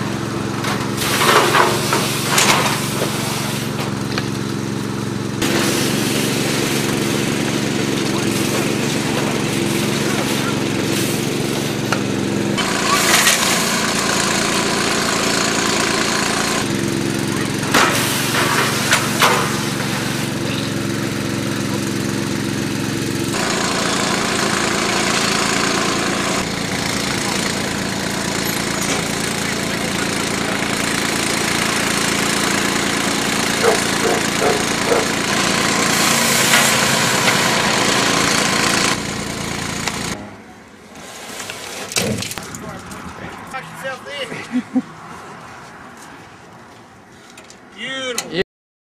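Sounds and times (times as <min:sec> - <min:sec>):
small engine running: 0:00.0 - 0:40.4
spray jets hissing: 0:01.0 - 0:03.8, 0:05.4 - 0:40.2
loud hiss: 0:05.4 - 0:07.3.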